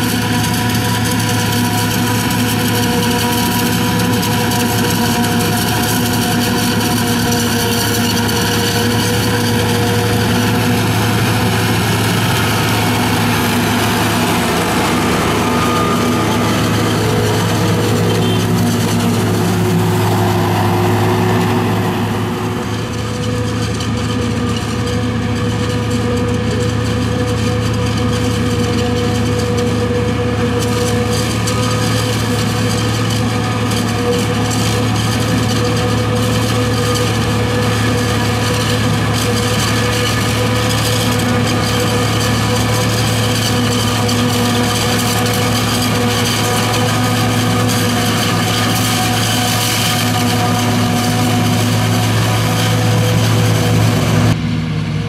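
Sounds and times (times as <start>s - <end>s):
chopped maize rushing into trailer: 0.0s - 54.3s
harvester engine hum: 0.0s - 55.0s
tractors running under load: 0.0s - 55.0s.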